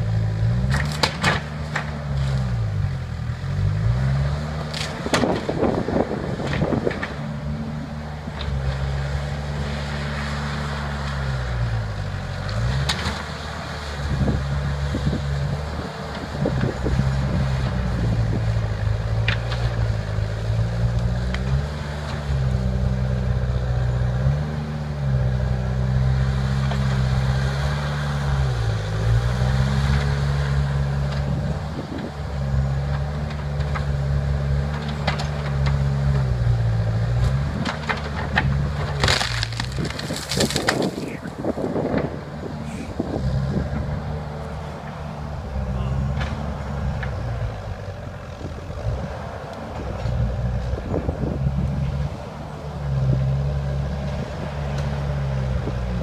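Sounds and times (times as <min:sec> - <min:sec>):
heavy machine engine lugging: 0:00.0 - 0:56.0
sharp cracks: 0:37.7 - 0:41.4.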